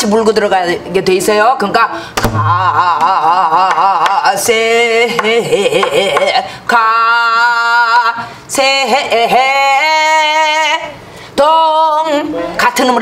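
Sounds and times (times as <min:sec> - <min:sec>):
singer breathing: 0:01.9 - 0:02.2, 0:06.4 - 0:06.7, 0:11.0 - 0:11.4
woman singing folk song: 0:02.6 - 0:13.0.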